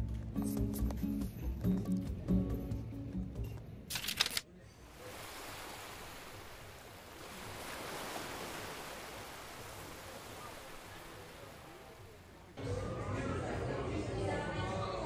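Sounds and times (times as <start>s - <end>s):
surf breaking on rocks: 4.9s - 12.5s.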